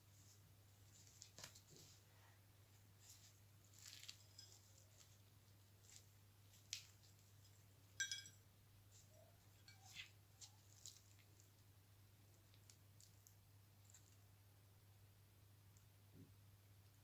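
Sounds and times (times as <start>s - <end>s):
pastry crust crackling: 2.8s - 8.3s, 8.9s - 14.4s.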